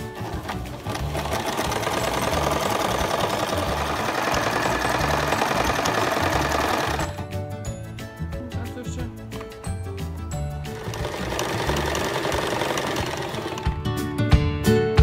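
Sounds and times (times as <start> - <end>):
sewing machine stitching: 0.0 - 7.3, 10.7 - 13.8.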